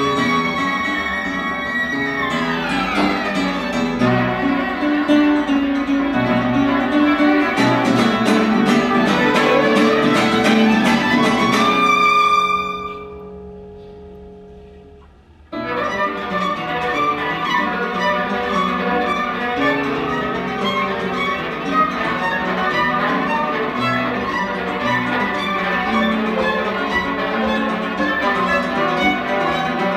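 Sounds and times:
violin and acoustic guitar duo: 0.0s - 13.4s, 15.6s - 29.9s.

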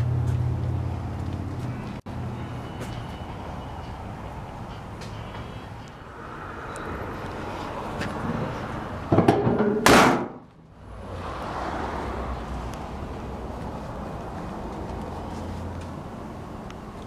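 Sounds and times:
car hood slamming shut: 9.1s - 10.4s.

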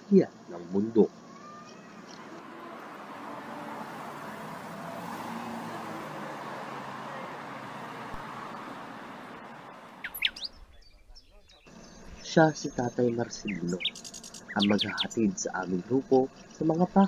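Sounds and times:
short rising bird chirps: 9.4s - 12.3s.

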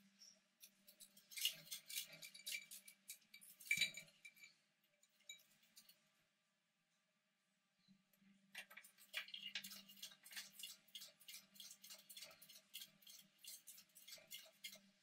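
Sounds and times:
small animals clicking and rustling: 8.6s - 14.9s.

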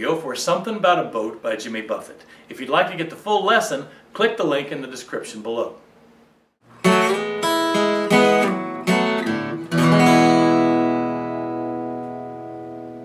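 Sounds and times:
acoustic guitar strummed: 6.7s - 13.0s.

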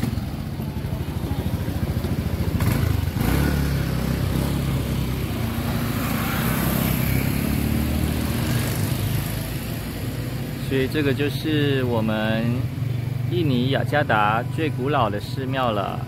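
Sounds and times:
motorcycle engine rumbling: 0.0s - 16.0s.

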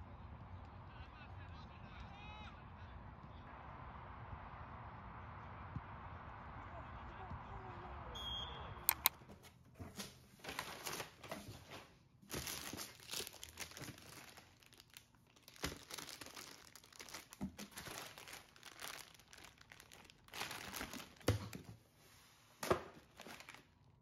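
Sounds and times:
packaging crinkling and tearing: 10.4s - 11.4s, 12.2s - 21.6s, 22.6s - 23.8s.

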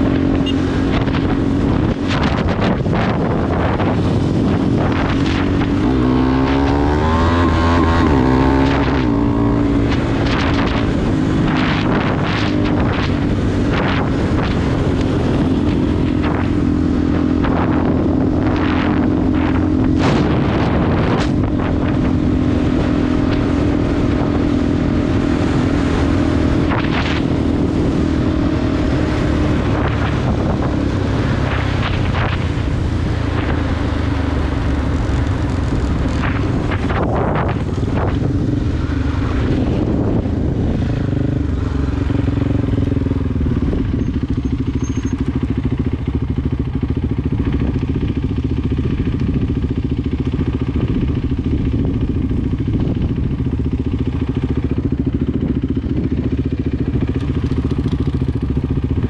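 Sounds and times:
motorcycle engine revving: 0.0s - 59.0s
wind buffeting microphone: 0.0s - 59.0s.

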